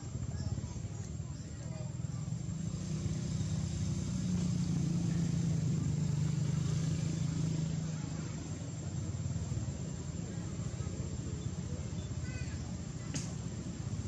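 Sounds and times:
vehicle engine rumble: 0.0s - 14.0s.

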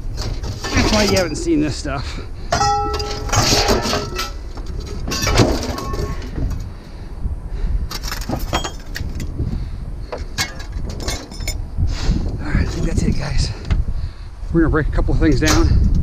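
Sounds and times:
scrap metal clanking and rattling: 0.0s - 6.8s, 7.9s - 9.4s, 10.0s - 11.6s.

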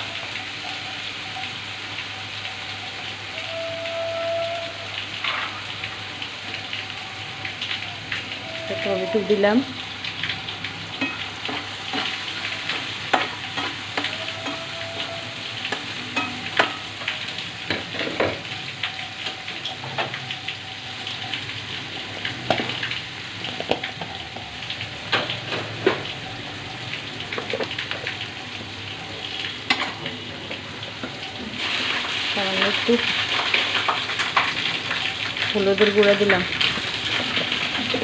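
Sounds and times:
vegetables sizzling in hot oil: 0.0s - 38.0s
metal spatula scraping pan: 13.1s - 16.9s.

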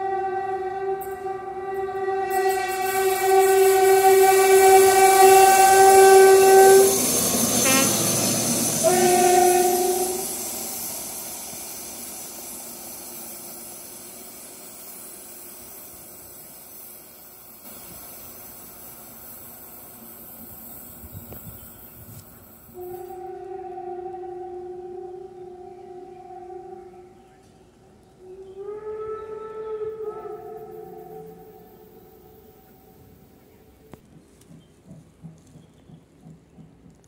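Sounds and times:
locomotive horn blast: 0.0s - 10.4s, 22.8s - 27.3s, 28.2s - 33.1s
train engine and wheels passing: 0.0s - 37.0s.

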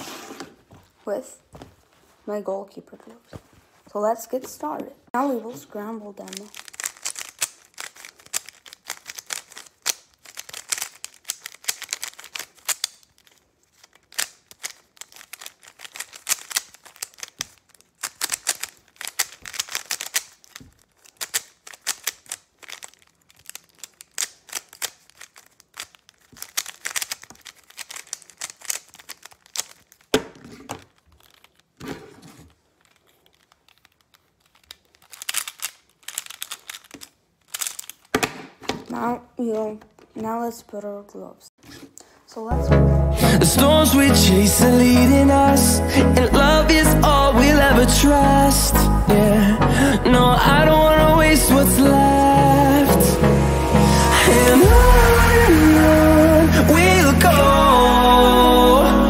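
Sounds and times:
plastic puzzle cube clacking: 5.3s - 39.0s.

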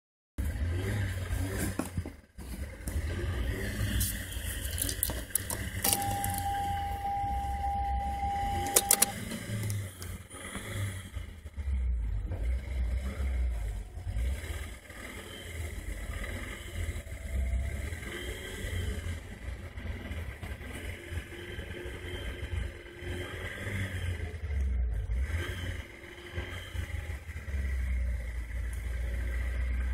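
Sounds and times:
electronic warning tone: 5.8s - 9.2s
sharp clicks: 8.5s - 10.2s.

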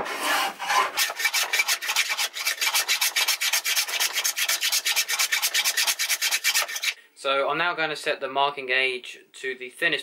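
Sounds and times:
hand plane shaving wood: 0.0s - 7.0s.

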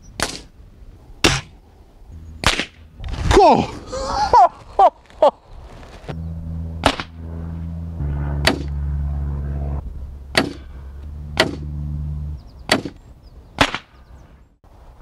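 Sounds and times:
steady low hum: 0.7s - 13.5s
pellets hitting steel target: 1.2s - 1.6s.

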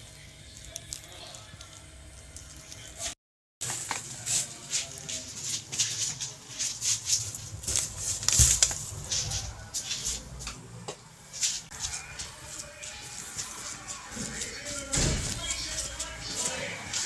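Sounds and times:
plastic bags rustling: 3.6s - 10.4s
thump: 14.9s - 15.4s.

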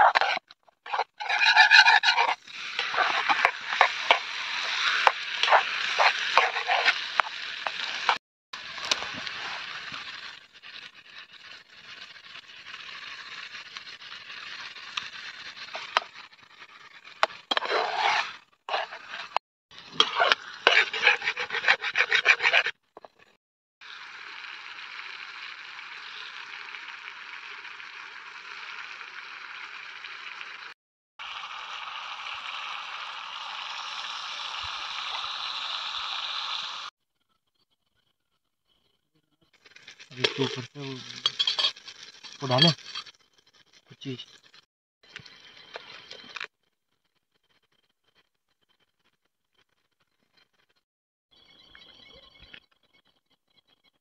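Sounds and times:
metal spatula scraping frying pan: 0.0s - 8.2s, 14.3s - 23.3s, 40.0s - 43.1s
food frying hiss: 0.0s - 36.9s, 39.6s - 46.4s.

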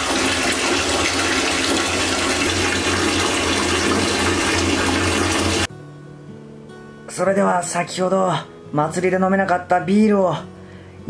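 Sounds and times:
tap water pouring into bathtub: 0.0s - 5.7s.

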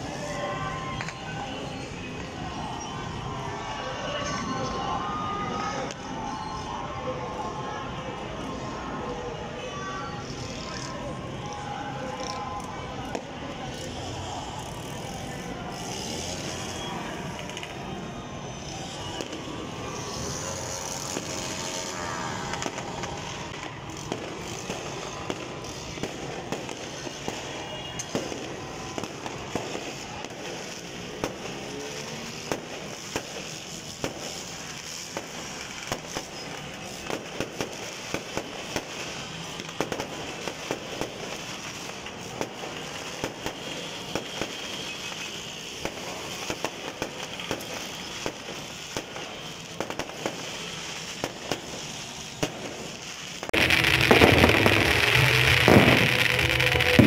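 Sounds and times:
fireworks popping and crackling: 0.0s - 57.0s
background din: 53.6s - 57.0s.

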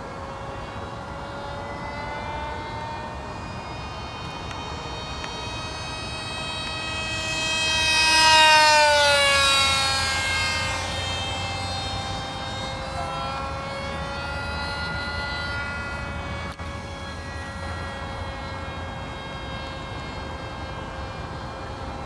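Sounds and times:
model plane motor whining: 0.0s - 22.0s.

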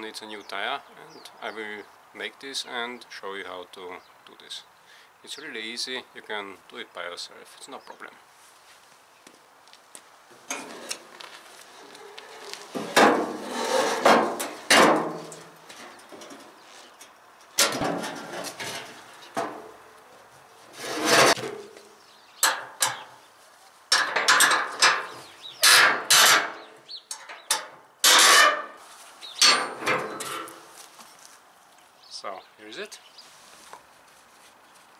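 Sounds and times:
wheelbarrow clanking on asphalt: 10.4s - 11.4s, 12.3s - 16.6s, 17.6s - 19.7s, 23.9s - 28.8s, 29.4s - 30.7s.

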